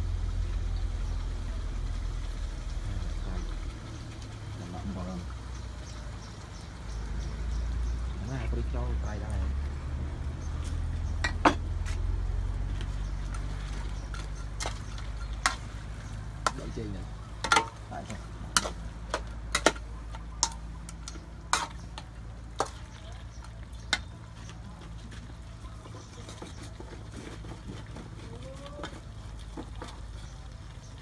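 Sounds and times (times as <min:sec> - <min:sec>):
low sizzle of frying: 0:00.0 - 0:31.0
metal spatula scraping wok: 0:12.8 - 0:16.6, 0:17.4 - 0:22.8.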